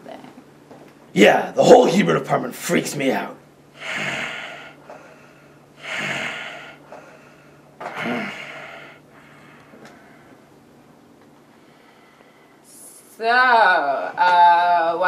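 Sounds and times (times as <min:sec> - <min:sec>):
person breathing heavily: 0:03.8 - 0:10.5, 0:11.6 - 0:12.7.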